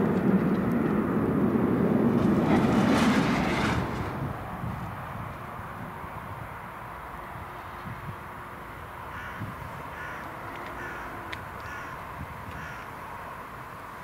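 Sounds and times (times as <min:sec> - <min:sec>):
distant jet engines hiss and rumble: 0:00.0 - 0:14.0
bird harsh calls: 0:09.1 - 0:12.0, 0:12.6 - 0:12.9.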